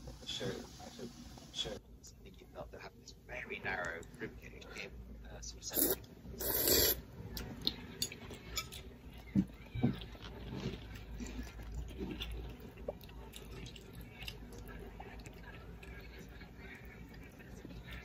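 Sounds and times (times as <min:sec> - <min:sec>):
person slurping noodles: 0:05.8 - 0:07.0
chewing: 0:07.3 - 0:18.0.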